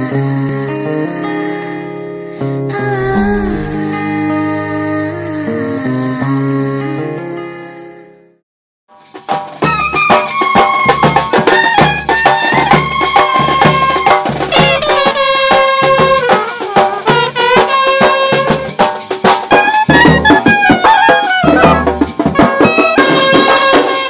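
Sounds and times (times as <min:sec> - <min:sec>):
barrel drum beats: 0:08.9 - 0:24.0
small side drum: 0:08.9 - 0:24.0
trumpet: 0:09.6 - 0:24.0.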